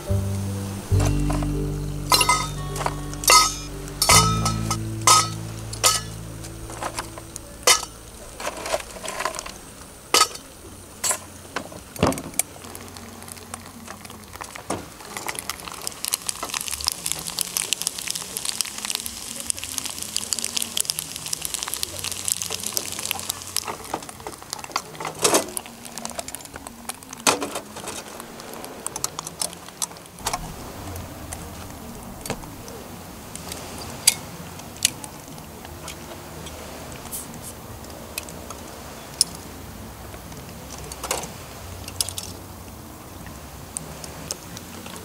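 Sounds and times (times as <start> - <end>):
low steady hum: 0.0 - 13.8, 30.2 - 40.7
food sizzling and crackling in pan: 0.9 - 11.5, 12.6 - 26.8.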